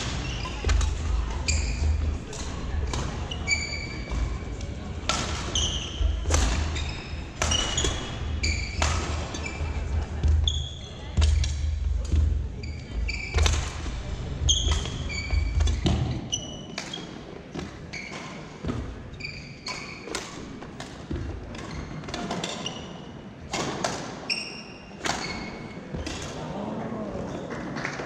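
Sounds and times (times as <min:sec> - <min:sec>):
sneakers squeaking on court: 0:00.0 - 0:02.0, 0:03.0 - 0:04.5, 0:05.1 - 0:20.3
rackets hitting shuttlecock: 0:00.0 - 0:10.6, 0:11.2 - 0:12.3, 0:13.1 - 0:18.9, 0:25.0 - 0:26.4.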